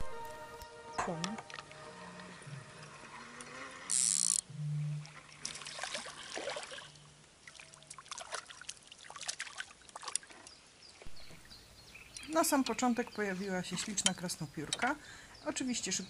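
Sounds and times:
fish splashing at water surface: 5.3s - 10.5s.

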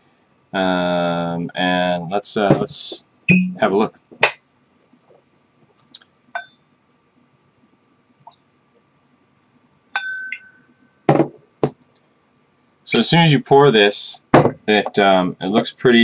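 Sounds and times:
glass-on-glass clink: 3.3s - 3.6s, 6.4s - 6.6s, 10.0s - 10.7s
small glass clicks: 10.0s - 10.6s.

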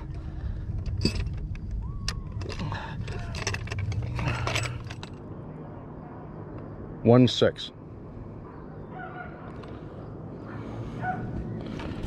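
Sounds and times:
fishing gear clicks and rattles: 0.0s - 5.2s
steady low rumble: 0.0s - 12.0s.

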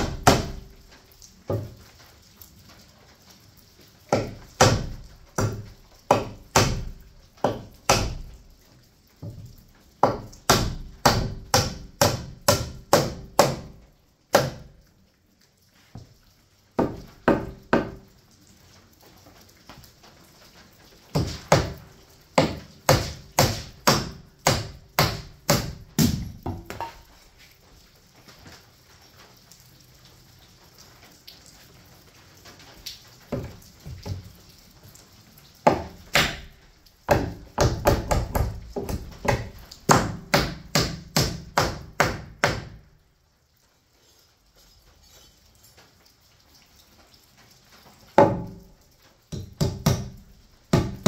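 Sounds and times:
hammer driving nails into wood: 4.1s - 8.2s, 22.4s - 26.9s.

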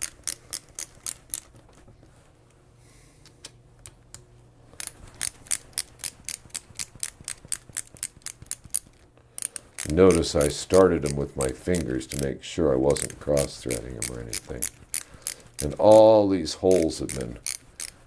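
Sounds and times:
ratchet clicking: 0.0s - 1.5s, 4.8s - 12.3s, 12.9s - 18.0s.

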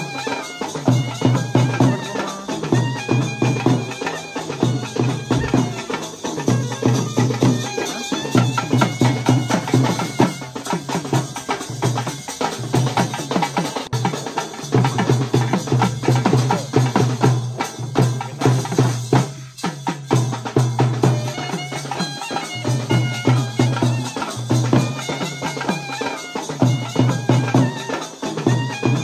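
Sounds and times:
reed pipe melody: 0.0s - 12.9s, 21.0s - 29.0s
fast dense drumming: 0.0s - 21.4s.

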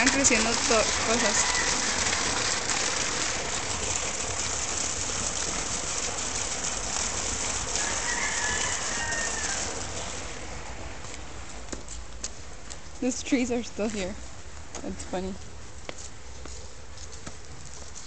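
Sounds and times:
running water rushing: 0.0s - 11.7s
rooster crowing: 1.3s - 2.0s, 7.8s - 9.9s.

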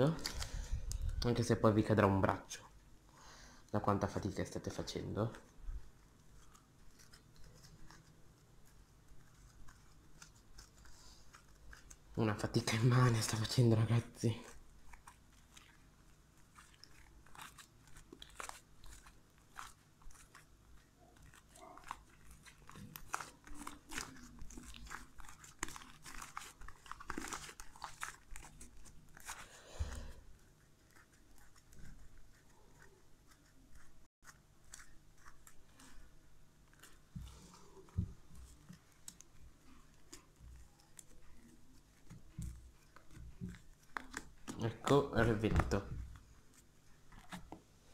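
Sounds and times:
sticky slime squelches: 3.7s - 47.9s.

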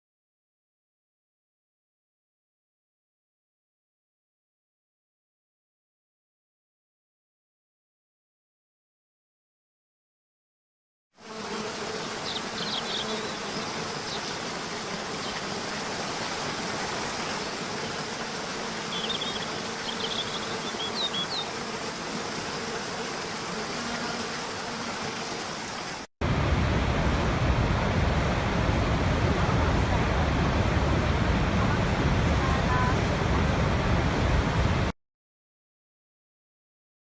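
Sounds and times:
deep roar of large waterfall: 26.2s - 34.9s.

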